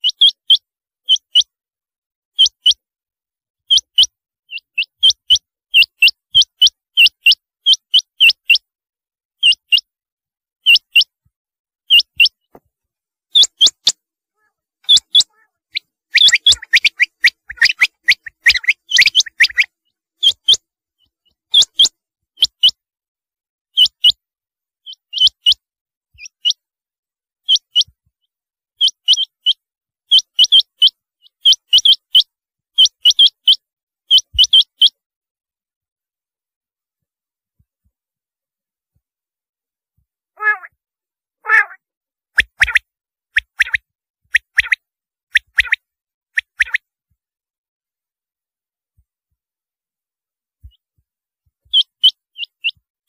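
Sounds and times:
quail calling: 0:13.3 - 0:20.6, 0:40.4 - 0:40.7, 0:41.4 - 0:41.8.

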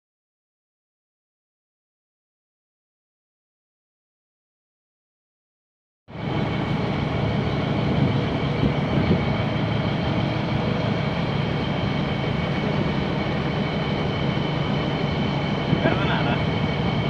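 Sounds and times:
boat engine droning: 0:06.1 - 0:17.0
water rushing around hull: 0:06.1 - 0:17.0
wind: 0:06.1 - 0:17.0.

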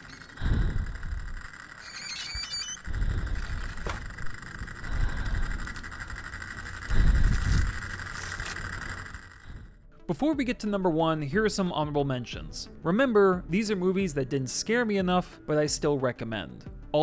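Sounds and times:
low rumbling swells: 0:02.9 - 0:09.8.

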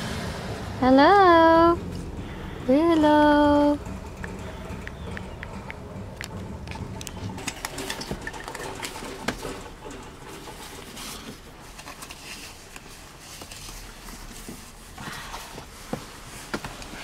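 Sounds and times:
straps rustling: 0:07.1 - 0:17.0.

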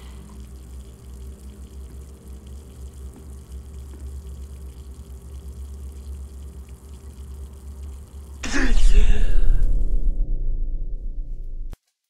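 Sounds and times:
faint watery gushing: 0:00.0 - 0:08.4
low rumble: 0:08.4 - 0:11.8.

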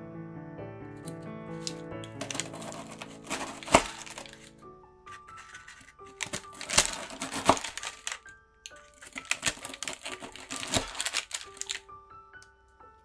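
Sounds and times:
soft background music: 0:00.0 - 0:13.0
knife crunching through granola: 0:01.6 - 0:04.5, 0:05.3 - 0:11.8.

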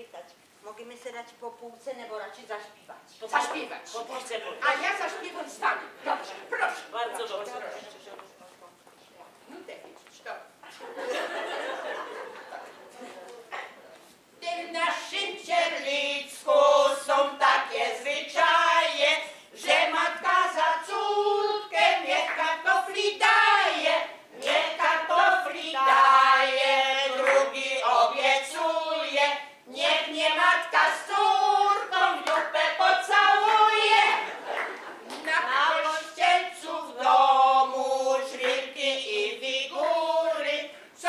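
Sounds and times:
women singing together: 0:14.4 - 0:41.0.

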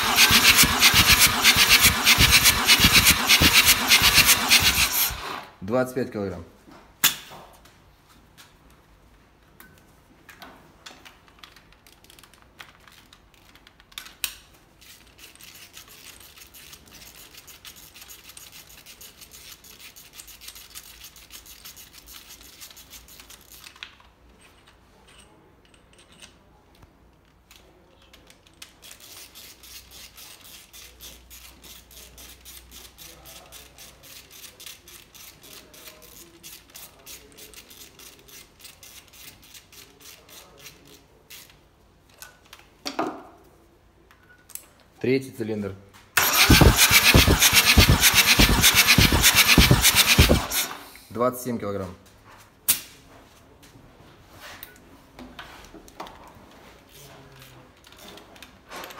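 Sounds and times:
ratchet wrench clicking: 0:00.0 - 0:05.4, 0:28.8 - 0:41.6, 0:46.2 - 0:50.9.

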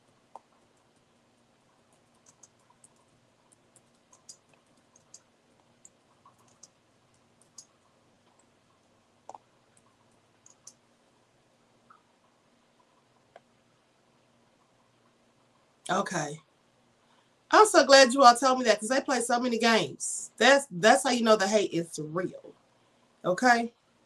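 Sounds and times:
keyboard and mouse clicking: 0:01.9 - 0:08.5, 0:09.2 - 0:10.8.

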